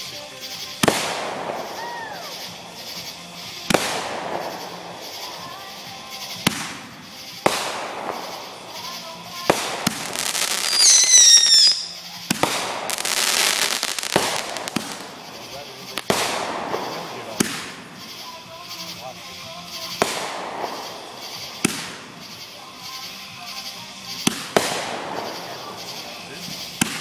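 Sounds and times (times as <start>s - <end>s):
crackling hiss: 0.0s - 27.0s
firework shells bursting: 0.0s - 27.0s
falling whistle: 10.7s - 11.9s.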